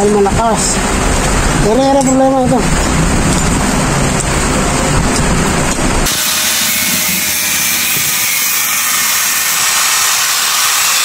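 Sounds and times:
angle grinder grinding metal: 5.2s - 11.0s.

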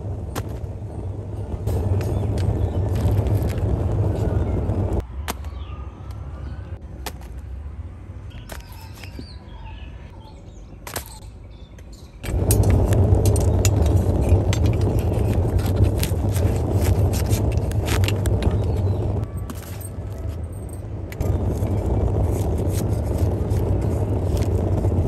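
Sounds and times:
tandoor low rumble: 0.0s - 5.1s, 12.2s - 19.4s, 20.2s - 25.0s
faint bird chirps: 5.4s - 6.8s, 8.3s - 12.2s.

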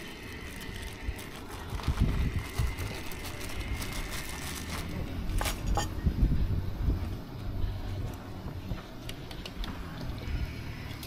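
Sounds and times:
wind buffeting microphone: 1.1s - 3.8s, 5.8s - 7.3s.

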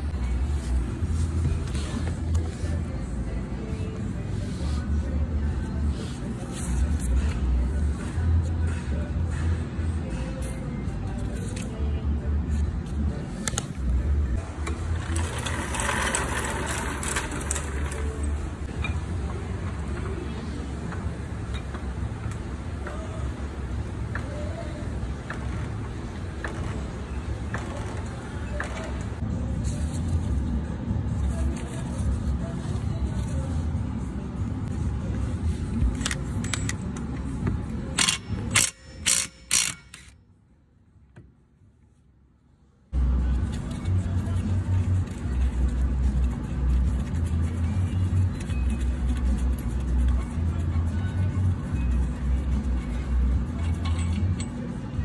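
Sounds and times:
impact wrench hammering: 38.0s - 40.1s.

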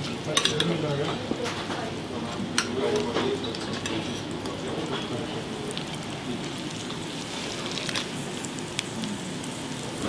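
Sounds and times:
butter sizzling in a frying pan: 2.7s - 10.0s.

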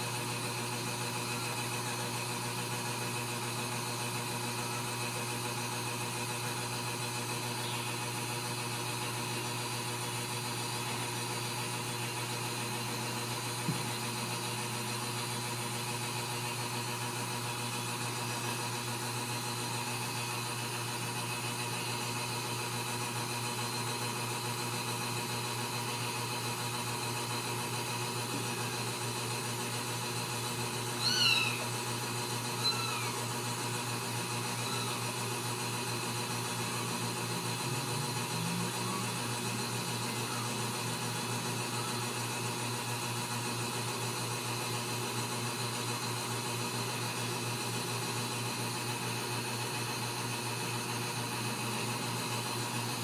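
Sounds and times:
low mechanical hum: 0.0s - 53.0s.

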